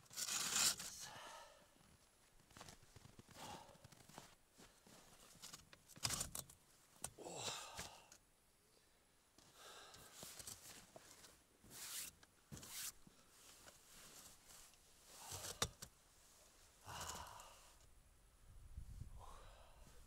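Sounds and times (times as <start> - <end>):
padded suit rustling in snow: 12.7 - 15.2.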